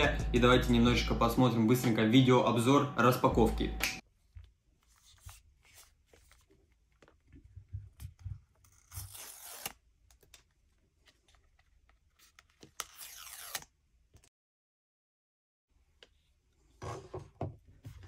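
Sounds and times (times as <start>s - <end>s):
packaging tearing: 8.7s - 10.2s, 12.2s - 13.7s.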